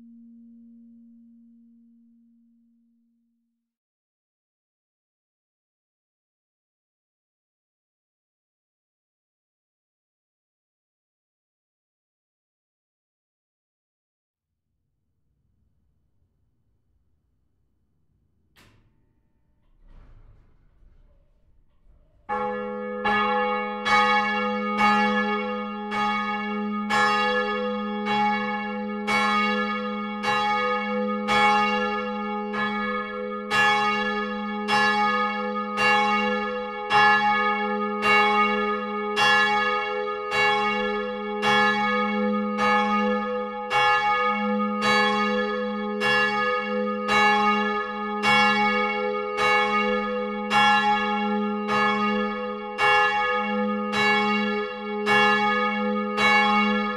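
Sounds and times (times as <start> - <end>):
church bells ringing: 21.8 - 56.9.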